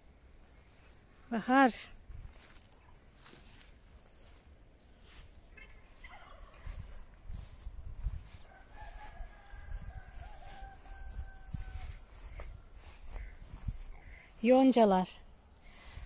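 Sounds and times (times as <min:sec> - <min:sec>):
footsteps through long grass: 0:00.0 - 0:16.0
wind rumble on microphone: 0:02.0 - 0:02.6, 0:05.5 - 0:14.3
rooster crowing: 0:07.4 - 0:13.0.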